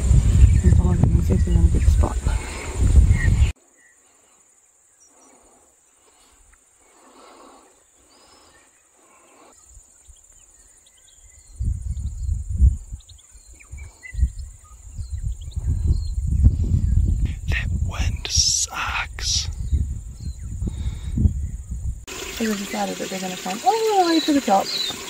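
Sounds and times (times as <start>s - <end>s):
wind buffeting microphone: 0.0s - 3.6s, 11.1s - 22.5s
insects chirring: 1.2s - 25.0s
bird chirps: 7.6s - 16.4s, 24.0s - 25.0s.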